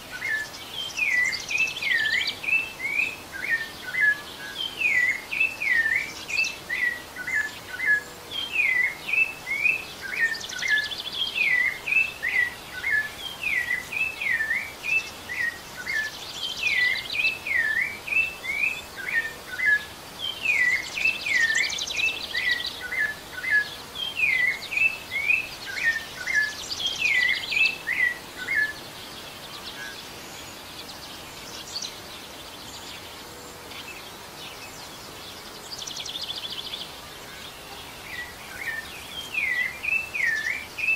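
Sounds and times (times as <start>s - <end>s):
thrush singing whistled notes: 0.0s - 33.0s, 37.9s - 40.9s
steady background hiss: 0.0s - 40.9s.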